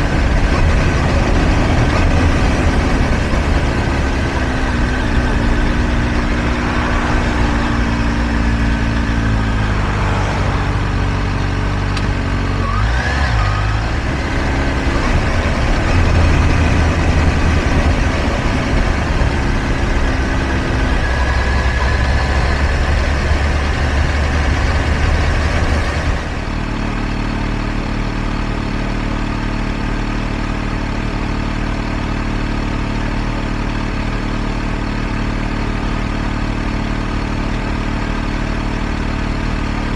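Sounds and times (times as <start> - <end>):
motorcycle engine idling: 0.0 - 12.6, 13.6 - 39.9
motorcycle engine running: 0.0 - 39.9.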